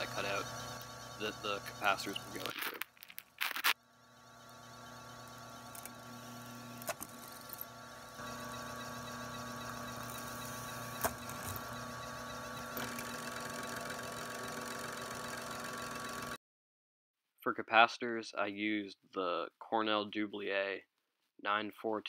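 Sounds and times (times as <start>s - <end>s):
drill press motor humming: 0.0s - 2.5s, 3.6s - 16.4s.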